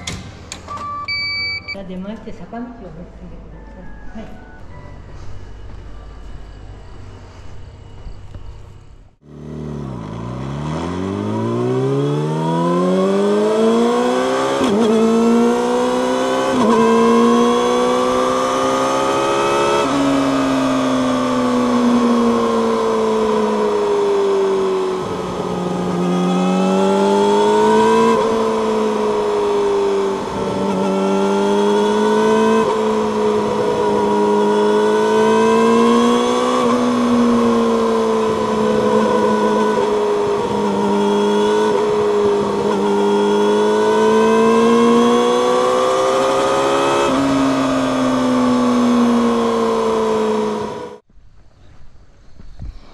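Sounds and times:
motorcycle accelerating through gears: 9.2s - 51.1s.

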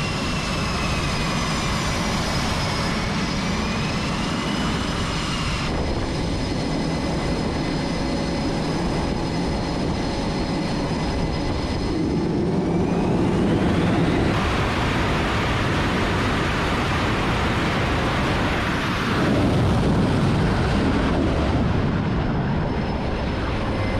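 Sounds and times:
jet engines whining: 0.0s - 23.9s
jet launch blast: 18.0s - 22.7s.

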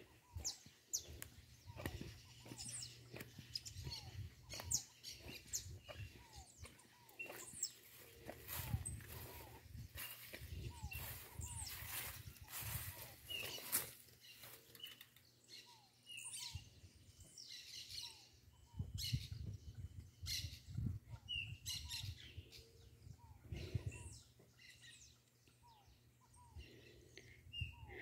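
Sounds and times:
guinea hen calling: 0.0s - 16.7s.

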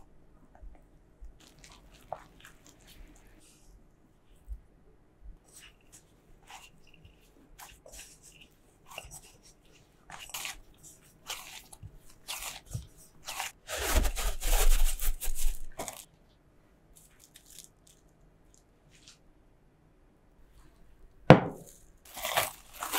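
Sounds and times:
hands kneading dough: 0.0s - 16.2s, 16.9s - 19.3s, 20.4s - 22.9s
plastic wrap crinkling: 1.4s - 3.4s, 10.1s - 16.1s, 17.0s - 18.6s, 21.6s - 22.9s.

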